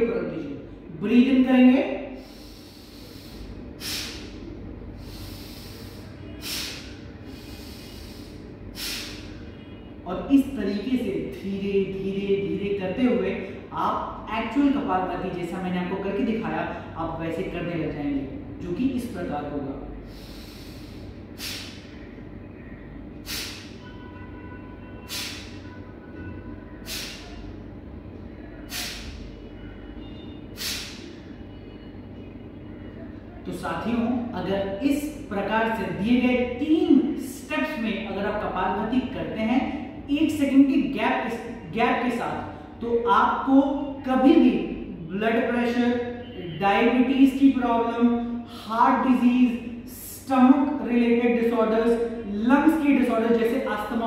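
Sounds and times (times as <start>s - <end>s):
faint breath in: 2.2s - 4.3s, 5.0s - 9.4s, 20.0s - 21.8s
sharp exhale through nose: 2.2s - 4.4s, 5.0s - 9.4s, 20.0s - 22.0s, 23.2s - 23.8s, 25.1s - 25.6s, 26.8s - 27.4s, 28.7s - 29.2s, 30.5s - 31.1s.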